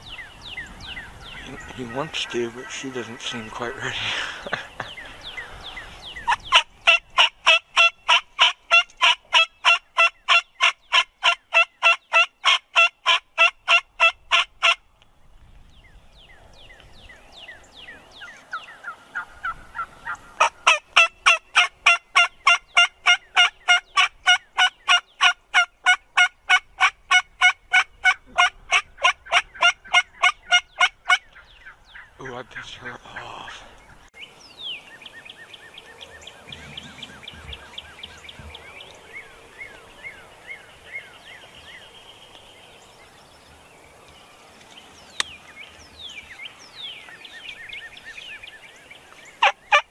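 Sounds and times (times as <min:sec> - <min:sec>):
songbird chirps: 0:00.0 - 0:49.9
turkey yelping: 0:05.8 - 0:14.8, 0:18.2 - 0:32.1, 0:49.4 - 0:49.9.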